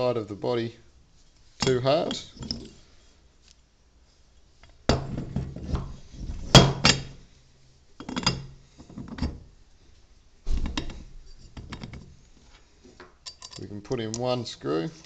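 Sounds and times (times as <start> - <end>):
metal parts knocking and clinking: 1.6 - 2.8, 8.0 - 9.4, 13.2 - 14.2.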